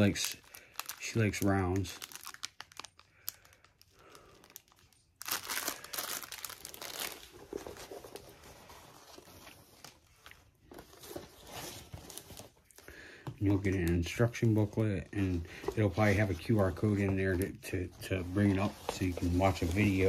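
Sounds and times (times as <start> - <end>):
plastic wrap crinkling: 0.0 - 12.8, 13.4 - 20.0
canvas rustling as unrolled: 18.0 - 20.0.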